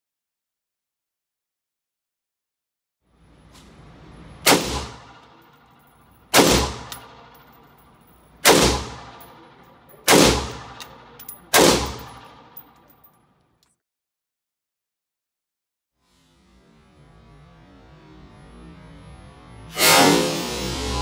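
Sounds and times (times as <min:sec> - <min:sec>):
rifle shots echoing indoors: 0:04.4 - 0:07.6, 0:08.4 - 0:13.0.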